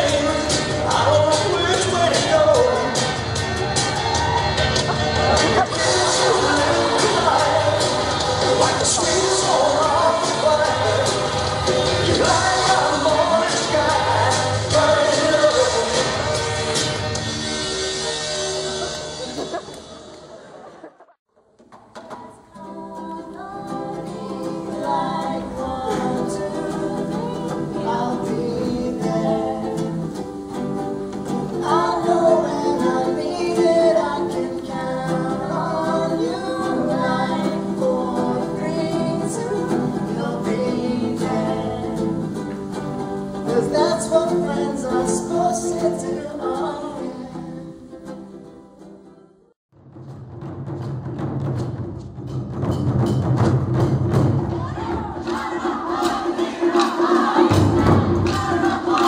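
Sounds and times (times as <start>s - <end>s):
group singing: 0.0s - 17.1s, 22.6s - 30.4s, 31.2s - 48.4s, 54.5s - 59.0s
strummed ukuleles and guitars: 0.0s - 20.9s, 21.6s - 49.5s, 50.7s - 59.0s.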